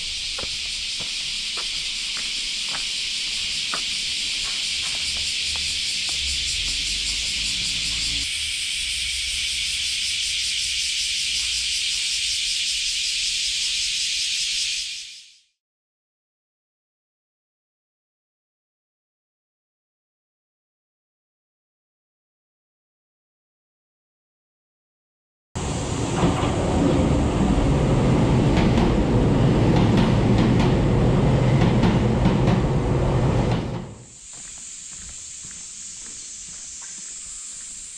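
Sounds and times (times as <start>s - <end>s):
train wheels rumbling on track: 0.0s - 8.4s, 25.6s - 35.6s
cicadas buzzing: 0.0s - 15.5s, 34.0s - 37.9s.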